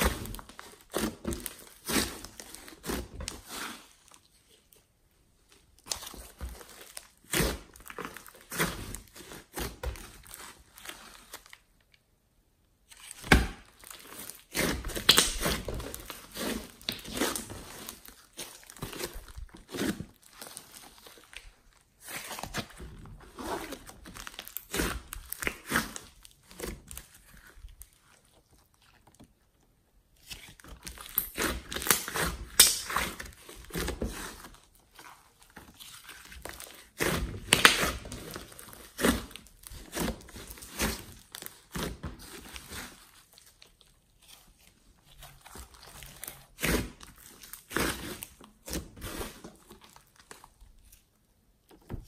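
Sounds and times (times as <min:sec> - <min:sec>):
slime being kneaded by hand: 0:00.0 - 0:11.8, 0:12.8 - 0:52.0
slime popping: 0:14.6 - 0:16.1.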